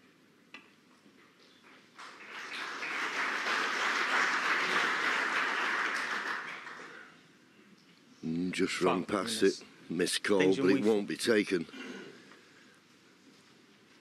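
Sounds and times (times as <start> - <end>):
audience applauding: 2.0 - 7.1.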